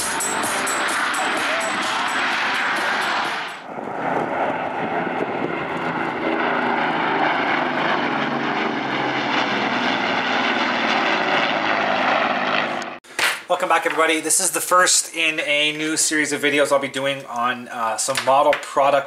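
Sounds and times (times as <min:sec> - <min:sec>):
music with tambourine beat: 0:00.0 - 0:03.4
propeller aircraft flying over: 0:00.0 - 0:13.0.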